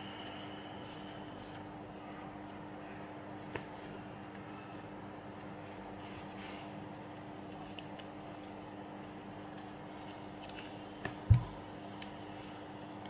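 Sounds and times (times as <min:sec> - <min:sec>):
paper crinkling and folding: 0:09.5 - 0:10.9.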